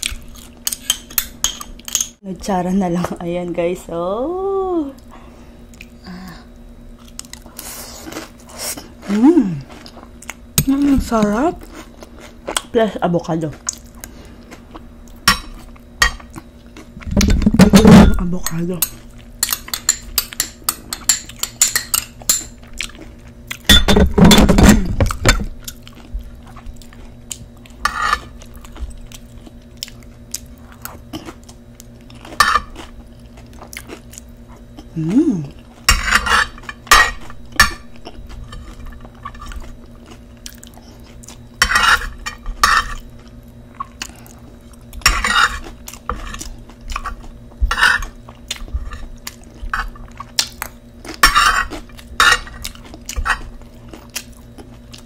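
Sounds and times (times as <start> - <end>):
faint steady hum: 0.0 - 55.0
chips crunching and chewing: 26.7 - 35.8, 36.4 - 41.5, 42.1 - 55.0.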